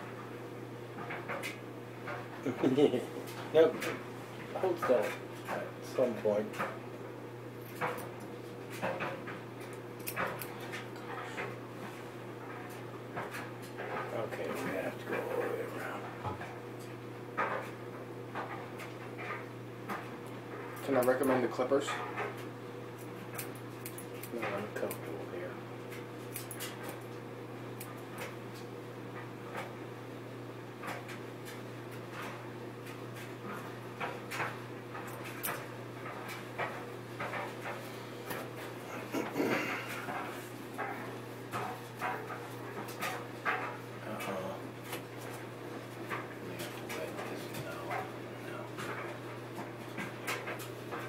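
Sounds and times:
steady low hum: 0.0s - 51.0s
scissors snipping hair: 10.0s - 10.6s, 23.0s - 25.0s, 26.3s - 27.0s.

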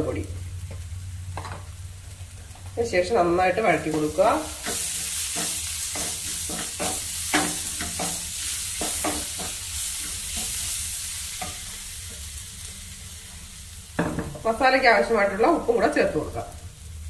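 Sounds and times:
food sizzling in oil: 0.0s - 17.0s
spatula scraping frying pan: 3.8s - 12.2s.

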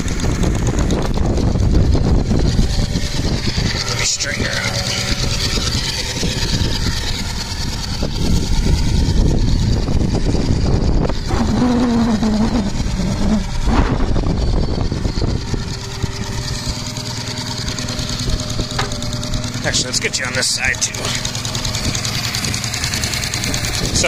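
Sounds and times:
model steam engine running: 0.0s - 11.4s.

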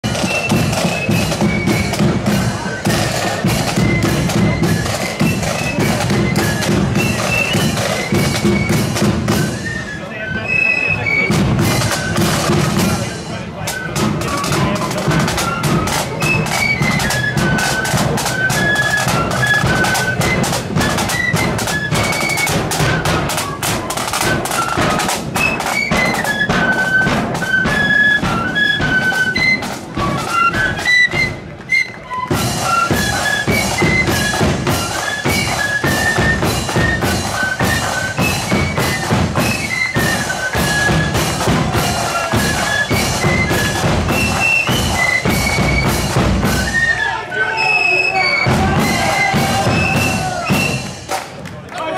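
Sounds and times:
snare and bass drums: 0.0s - 9.9s, 11.0s - 47.0s, 48.4s - 51.4s
flutes playing quick melody: 0.0s - 51.4s.

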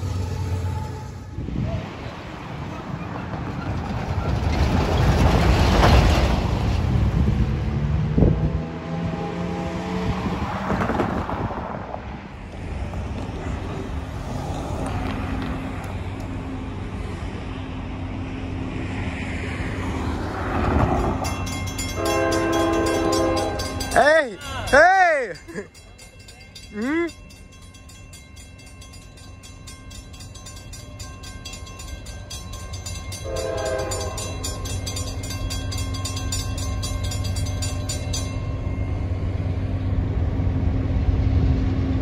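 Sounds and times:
locomotive horn: 0.0s - 1.4s, 21.7s - 24.8s, 33.1s - 34.7s
road traffic: 0.0s - 42.0s
crossing bell ringing: 20.8s - 40.2s.

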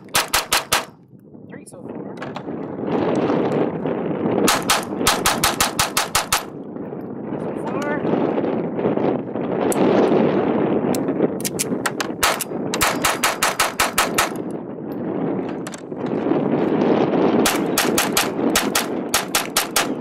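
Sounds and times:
pistol shots: 0.0s - 0.9s, 17.4s - 20.0s.

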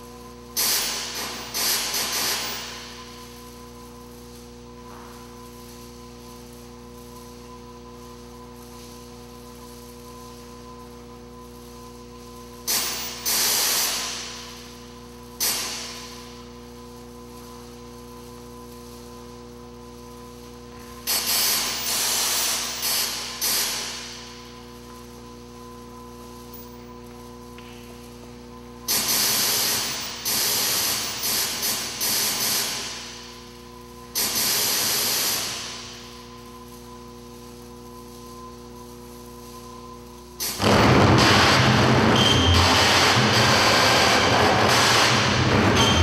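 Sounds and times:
electronic hissing noise bursts: 0.0s - 4.5s, 12.6s - 17.9s, 20.9s - 26.6s, 27.8s - 39.8s, 40.4s - 46.0s
steady electronic hum: 0.0s - 46.0s.

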